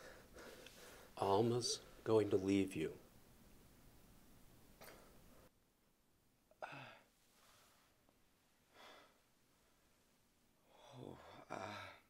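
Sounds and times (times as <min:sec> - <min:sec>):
soft breaths: 0:00.0 - 0:02.1, 0:06.5 - 0:12.0.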